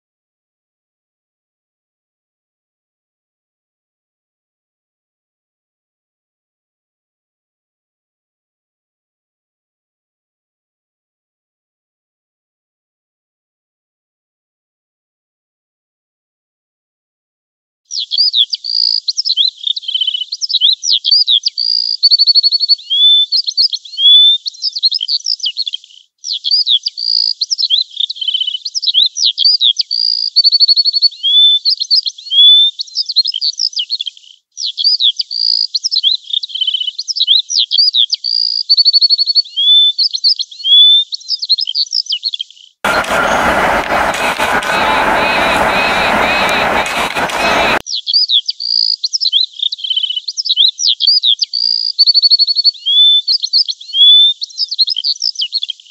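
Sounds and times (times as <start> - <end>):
songbird singing: 17.9 - 42.8, 47.8 - 55.9
dense noisy background: 42.9 - 47.8.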